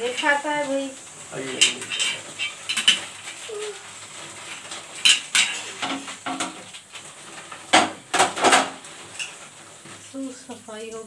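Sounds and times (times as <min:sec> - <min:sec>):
metal pans clanking: 0:01.4 - 0:10.0.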